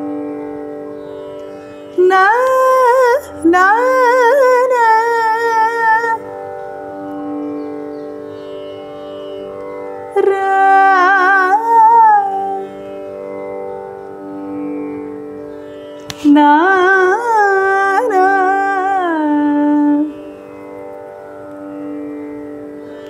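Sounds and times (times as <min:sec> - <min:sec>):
tanpura drone: 0:00.0 - 0:23.0
person singing: 0:10.2 - 0:12.7, 0:16.2 - 0:20.2.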